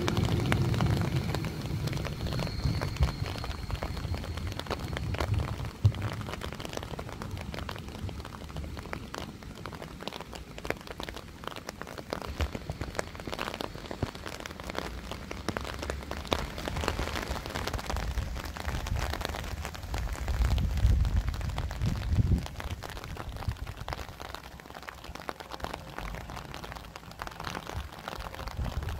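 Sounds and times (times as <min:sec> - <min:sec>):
low rain rumble: 0:00.0 - 0:28.9
rain drops ticking: 0:00.0 - 0:28.9.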